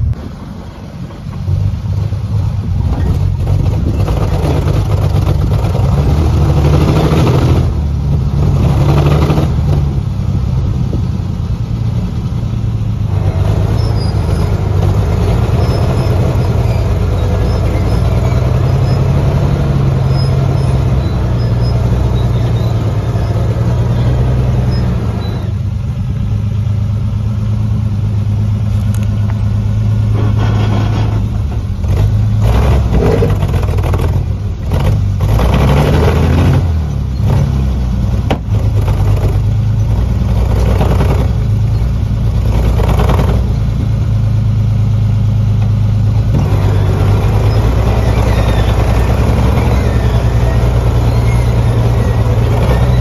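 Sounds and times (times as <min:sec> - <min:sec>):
truck engine under load: 0:00.0 - 0:53.0.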